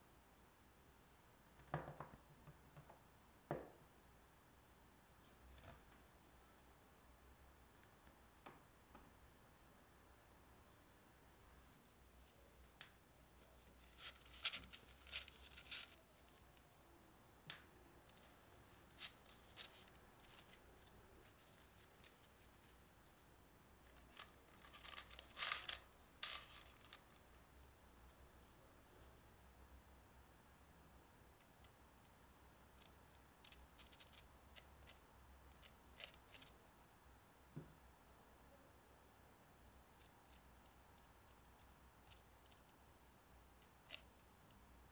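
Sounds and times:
parchment paper crackling: 0:13.4 - 0:16.7, 0:18.0 - 0:23.2, 0:23.8 - 0:27.3, 0:32.8 - 0:36.5.

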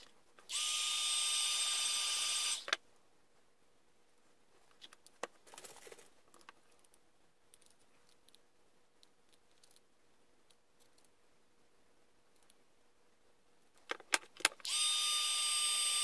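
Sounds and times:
faint steady hum: 0:00.0 - 0:16.0
small parts clicking and rattling: 0:09.3 - 0:09.8.

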